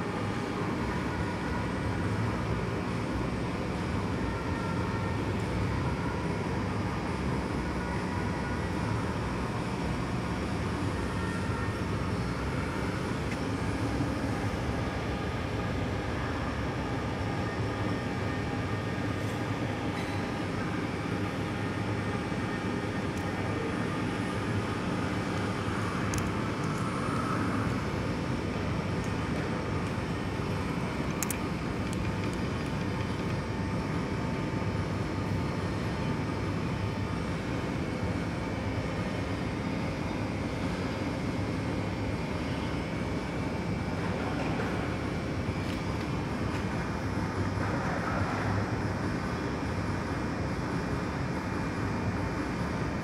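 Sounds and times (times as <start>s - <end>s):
faint steady whine: 0.0s - 53.0s.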